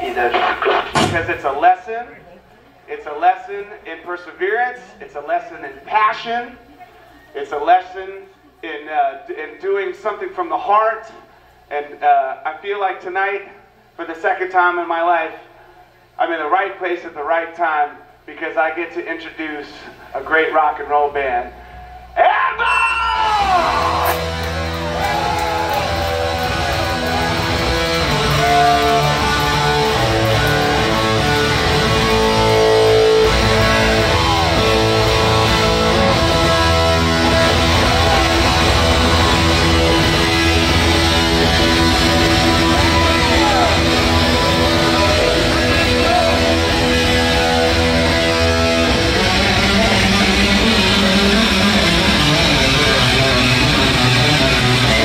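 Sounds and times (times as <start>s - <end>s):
drums: 0.0s - 1.6s, 22.6s - 55.0s
distorted electric guitar: 21.6s - 55.0s
bass guitar: 23.0s - 55.0s.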